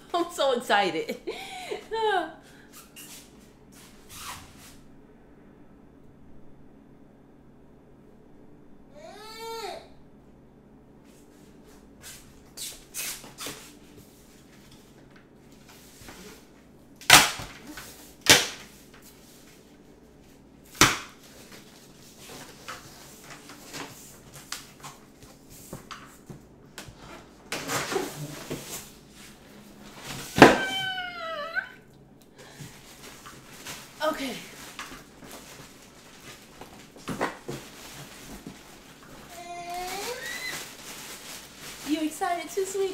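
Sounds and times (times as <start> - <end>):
baby crying: 9.0 - 9.9, 30.4 - 31.8.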